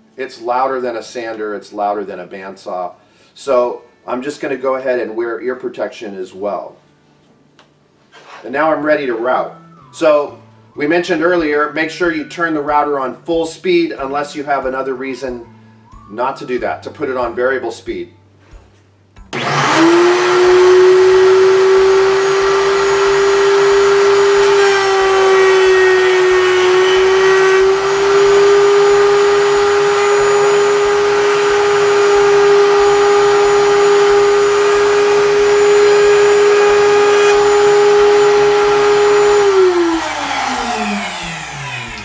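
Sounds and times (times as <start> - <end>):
router motor whining: 19.3 - 42.0.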